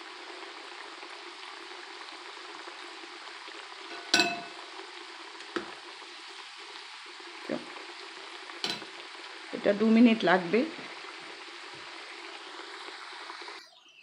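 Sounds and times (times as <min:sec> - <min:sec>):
fries sizzling in hot oil: 0:00.0 - 0:14.0
metal skimmer clinking: 0:03.9 - 0:04.7, 0:08.6 - 0:08.9.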